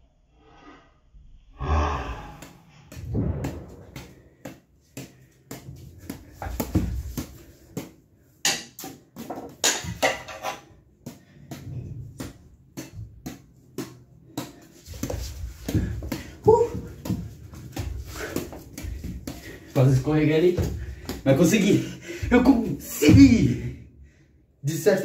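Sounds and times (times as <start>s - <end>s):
badminton racket taps: 2.4s - 10.4s, 11.0s - 22.7s.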